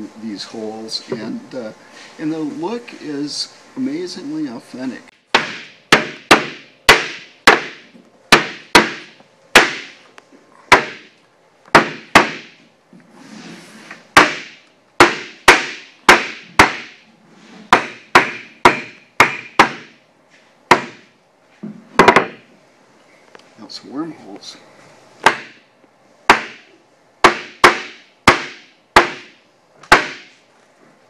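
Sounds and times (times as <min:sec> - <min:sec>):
wooden club whacking oak: 0:29.9 - 0:30.3.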